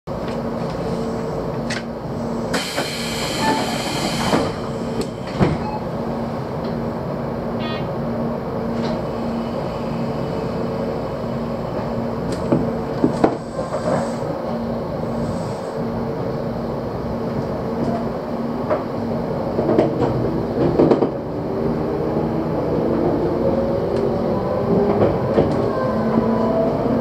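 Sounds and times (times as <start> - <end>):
electric train hum: 0.1 - 27.0
air hiss: 2.5 - 5.4.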